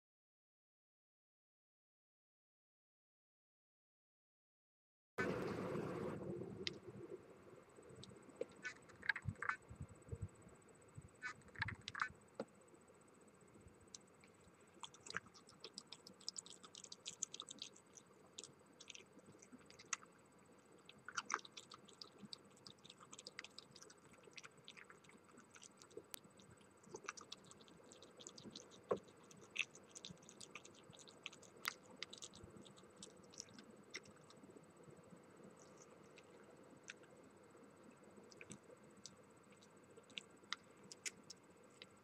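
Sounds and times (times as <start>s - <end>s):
fox chewing and crunching food: 7.8s - 12.6s, 13.9s - 37.2s, 37.8s - 42.0s.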